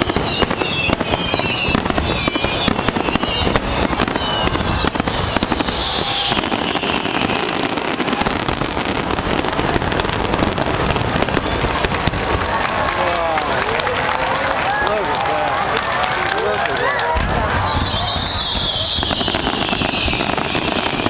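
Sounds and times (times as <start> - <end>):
fireworks bursting and crackling: 0.0 - 21.0.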